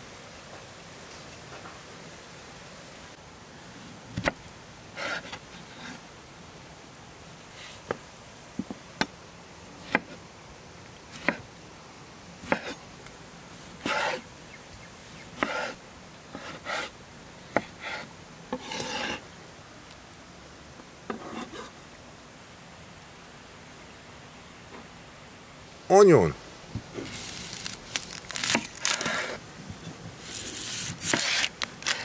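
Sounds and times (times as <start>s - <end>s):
knife slicing and scraping: 12.4s - 12.8s, 13.8s - 14.2s, 15.4s - 15.8s, 17.6s - 19.2s, 21.1s - 21.8s, 27.0s - 29.4s, 30.2s - 32.0s.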